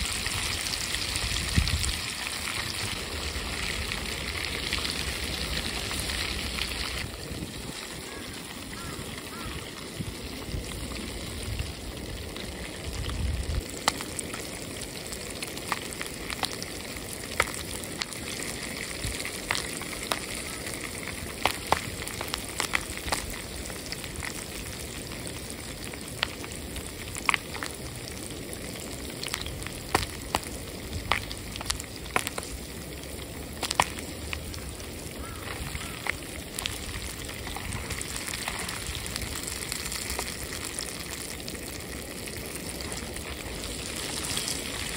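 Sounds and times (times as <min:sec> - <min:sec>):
oil sizzling: 0:00.0 - 0:44.9
popcorn kernels popping: 0:19.4 - 0:23.4.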